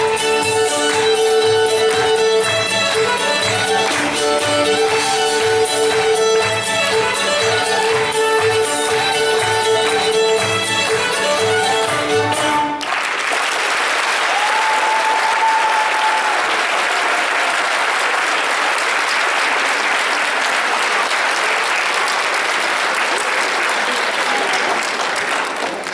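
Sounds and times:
dance music: 0.0s - 12.6s
audience applauding: 0.0s - 25.9s.

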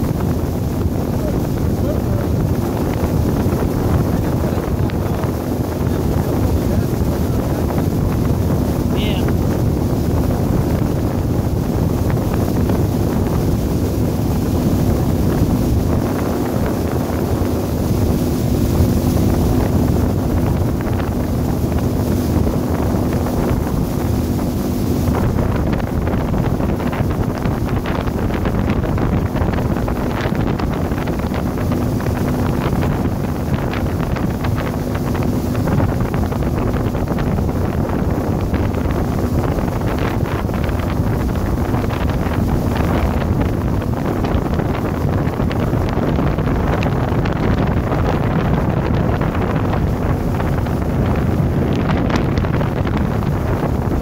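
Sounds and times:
motorboat engine hum: 0.0s - 54.0s
water rushing: 0.0s - 54.0s
wind buffeting microphone: 0.0s - 54.0s.

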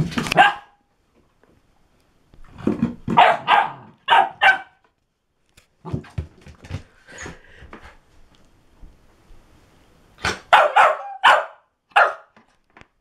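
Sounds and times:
dog barking: 0.4s - 0.8s, 3.1s - 4.8s, 10.5s - 12.4s.

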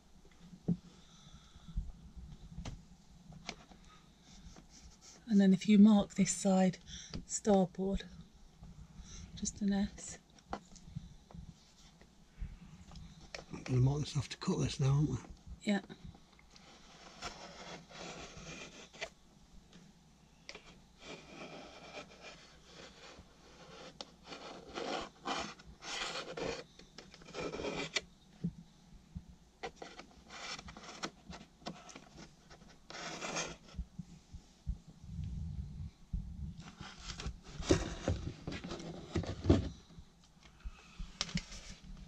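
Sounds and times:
pencil scraping on wood: 16.6s - 19.1s, 21.0s - 28.0s, 29.6s - 33.8s.

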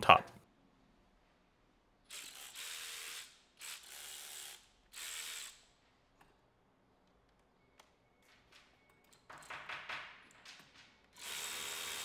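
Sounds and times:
cordless ratchet whirring: 2.1s - 5.7s.

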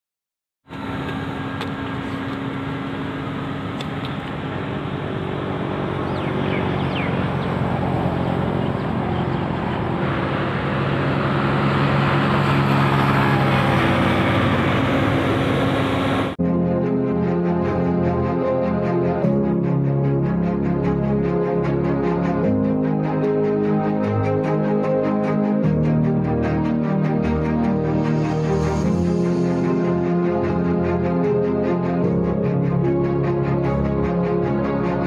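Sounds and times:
car tyre and road noise: 0.7s - 16.4s.

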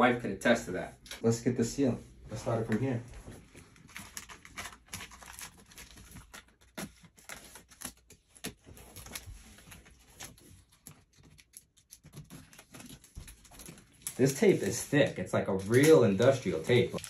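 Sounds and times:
packing tape peeling off cardboard: 4.0s - 14.9s.

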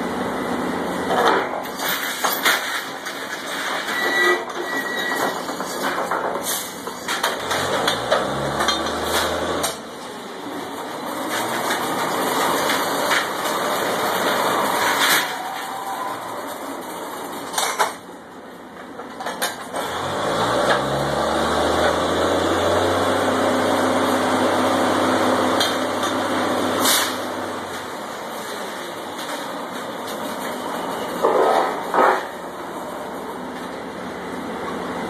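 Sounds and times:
drilling rig engine revving: 7.4s - 9.8s, 19.8s - 27.6s.

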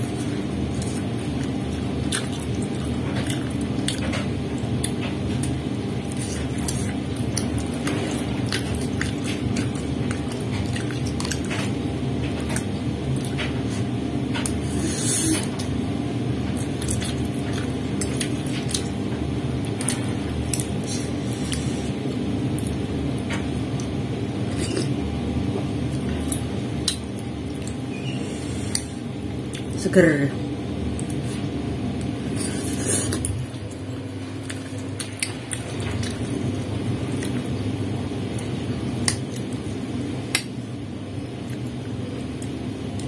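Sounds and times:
wet chewing: 0.0s - 15.8s, 16.4s - 22.8s.

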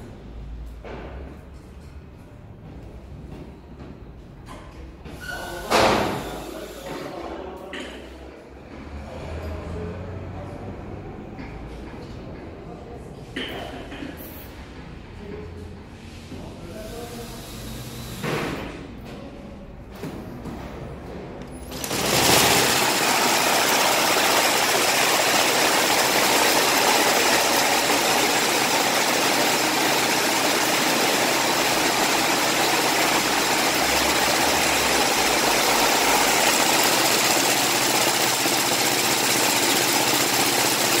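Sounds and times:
braiding machine running: 21.6s - 41.0s.

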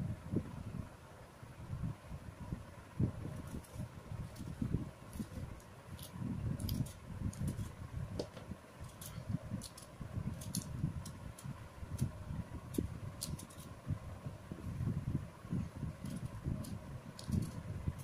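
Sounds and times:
knife clicks and scrapes: 5.1s - 7.8s, 8.8s - 12.1s, 12.7s - 13.7s, 16.0s - 17.6s.

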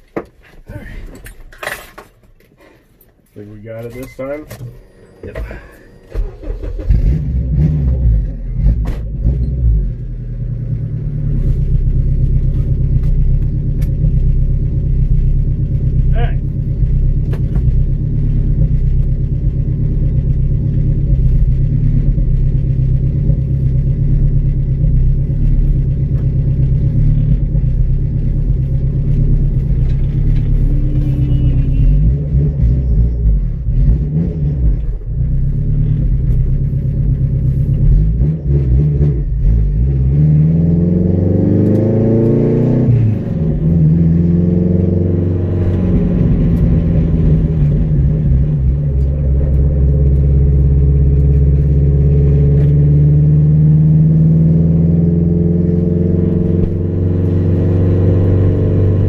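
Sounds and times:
car engine droning and revving: 3.4s - 59.0s.

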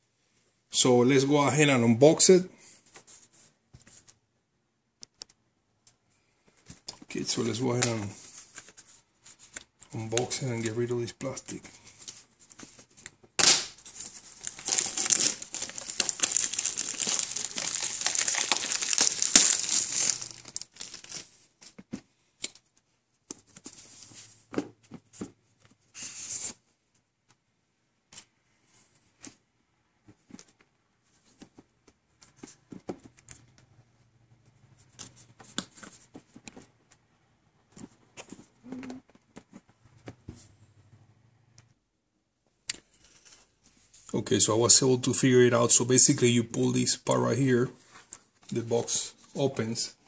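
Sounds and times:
plastic wrapping tearing and crinkling: 13.4s - 21.4s.

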